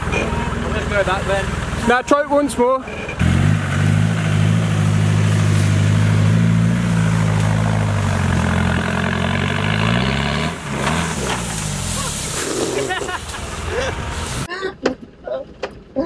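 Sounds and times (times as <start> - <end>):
engine revving under load: 2.8 - 14.5.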